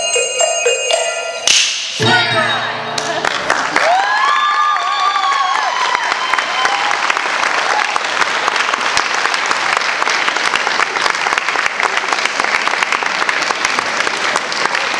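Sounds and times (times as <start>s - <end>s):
handbells ringing: 0.0s - 3.0s
audience applauding: 3.0s - 14.9s.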